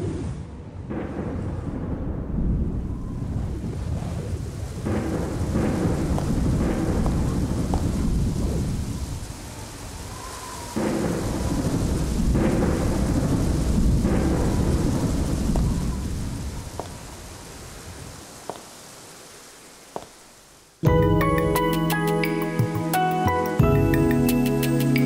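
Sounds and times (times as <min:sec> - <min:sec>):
low thunder rumbles: 0:00.0 - 0:18.3
heavy rain falling: 0:00.7 - 0:25.0.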